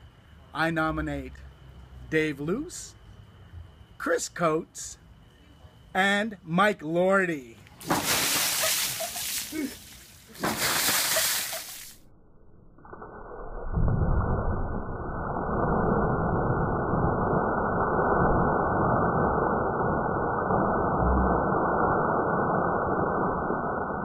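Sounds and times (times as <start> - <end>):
water splashing from bucket: 7.8 - 12.0
muffled slow motion rushing rumble: 12.1 - 24.0.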